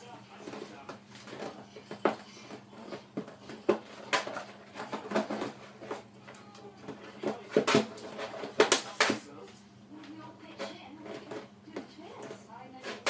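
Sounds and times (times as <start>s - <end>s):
plastic bottle clacking and crinkling: 0.4s - 9.2s.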